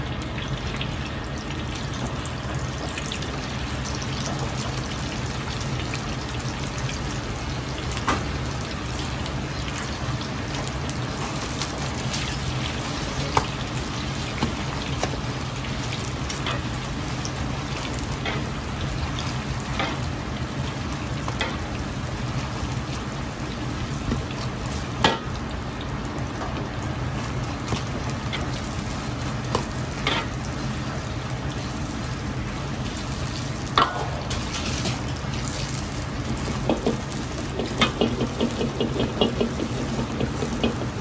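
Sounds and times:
meat deep-frying in oil: 0.0 - 41.0
ladle knocking against wok: 36.5 - 41.0.

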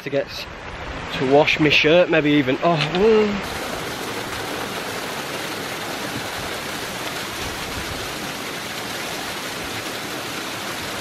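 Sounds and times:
waterfall pouring onto rocks: 3.0 - 11.0.

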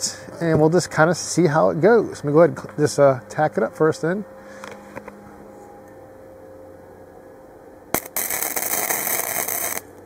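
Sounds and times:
welding arc crackling: 7.9 - 10.0.

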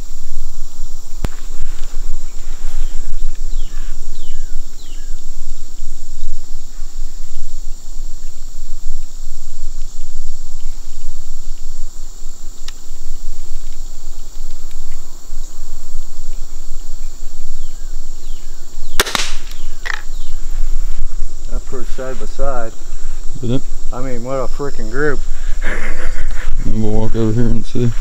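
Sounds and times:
insects chorus droning: 0.0 - 28.0
crossbow firing snap: 18.9 - 20.1.

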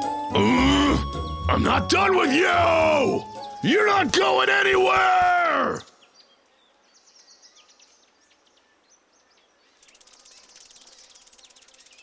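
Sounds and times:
faint bird chirps: 5.7 - 12.0.

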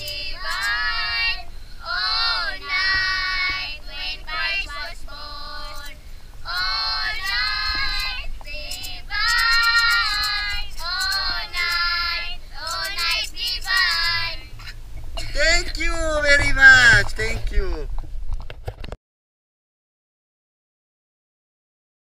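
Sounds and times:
children singing: 0.0 - 14.4.

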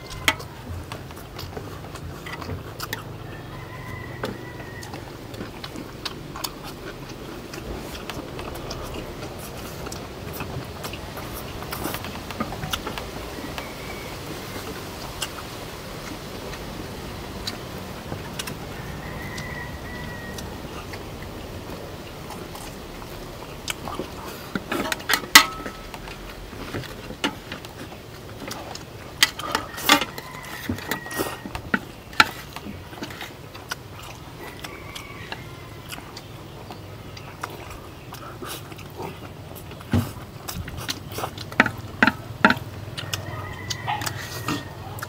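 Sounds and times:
chewing: 0.0 - 45.0
chopsticks clinking against plates: 24.6 - 25.9.

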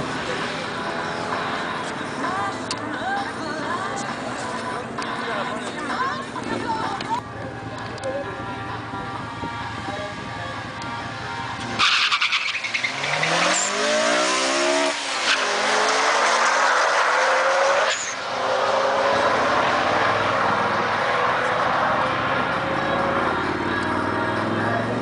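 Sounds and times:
cars launching: 11.5 - 25.0
engines revving hard: 11.6 - 25.0.

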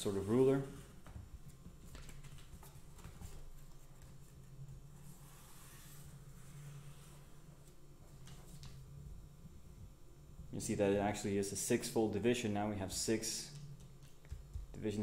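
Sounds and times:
steady low hum: 0.0 - 15.0
marker strokes on paper: 3.3 - 7.8.

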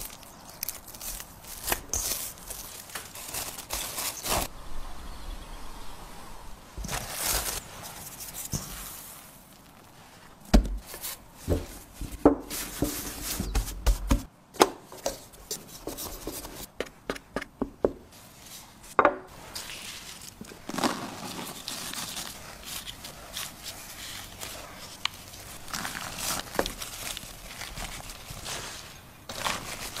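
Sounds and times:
plastic wrap crinkling: 0.0 - 4.5, 6.8 - 11.2, 19.4 - 30.0
hands patting dough: 15.0 - 18.0
shredded cheese rustling: 19.4 - 30.0.

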